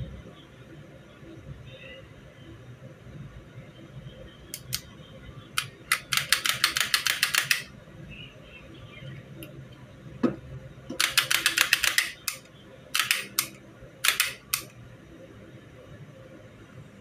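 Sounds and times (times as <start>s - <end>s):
pistol action clicking: 11.0s - 12.4s, 13.0s - 14.7s.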